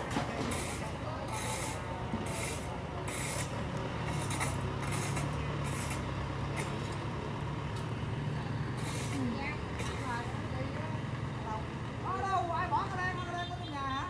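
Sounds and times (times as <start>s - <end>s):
truck engine humming: 0.0s - 14.0s
hand tools scraping through gravel: 0.5s - 6.8s, 8.8s - 10.1s.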